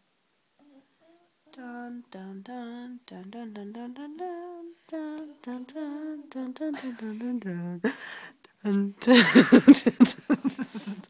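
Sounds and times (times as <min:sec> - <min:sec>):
woman humming: 0:00.6 - 0:08.0.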